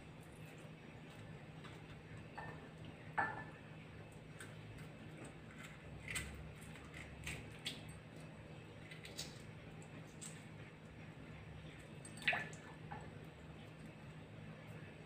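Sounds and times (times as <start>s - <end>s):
eggshell clicking and crackling: 4.2s - 10.6s.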